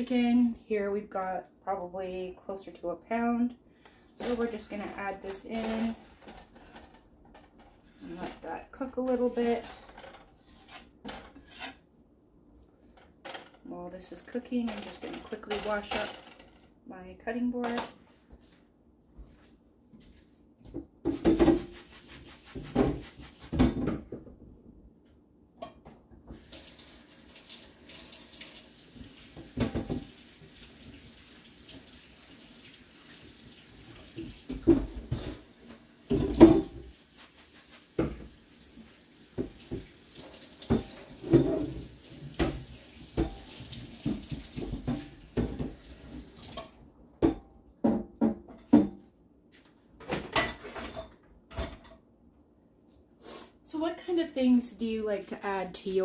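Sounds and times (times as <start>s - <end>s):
tap running into sink: 39.3s - 46.8s.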